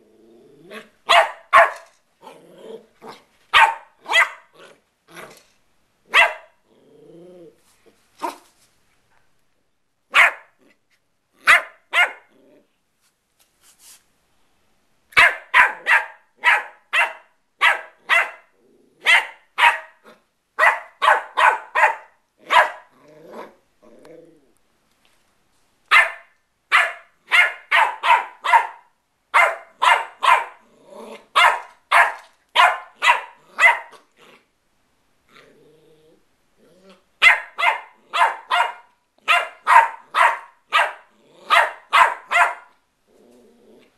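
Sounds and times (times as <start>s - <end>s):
puppy yapping: 0.7s - 1.9s, 3.0s - 4.6s, 6.1s - 6.6s, 10.1s - 10.5s, 11.4s - 12.3s, 15.2s - 22.9s, 25.9s - 34.0s, 37.2s - 42.7s.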